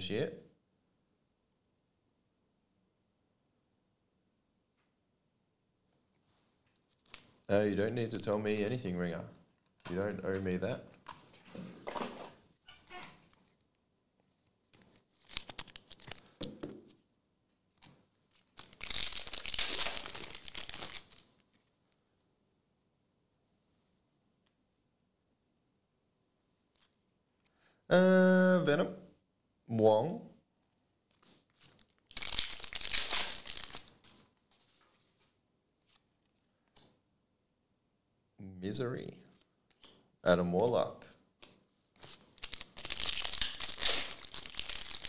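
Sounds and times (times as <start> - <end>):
foil wrapper crackling: 18.4 - 21.2, 31.6 - 34.2, 42.0 - 45.0
foil tearing and crinkling: 18.5 - 21.2, 31.6 - 33.9, 42.0 - 45.0.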